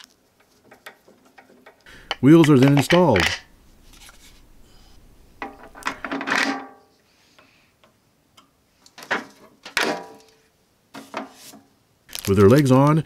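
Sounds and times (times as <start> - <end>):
metal parts clinking: 1.3 - 6.8.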